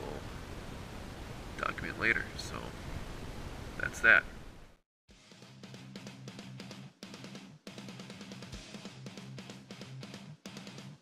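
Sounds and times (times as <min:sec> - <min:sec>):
background music with drum beat: 0:05.1 - 0:11.0.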